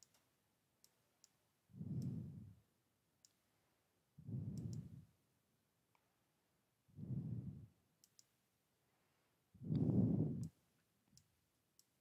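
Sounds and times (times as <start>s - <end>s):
computer mouse clicking: 0.0s - 2.4s, 4.4s - 5.0s, 8.0s - 8.4s
low muffled puffs: 1.7s - 2.6s, 4.2s - 5.1s, 6.9s - 7.8s, 9.0s - 10.5s.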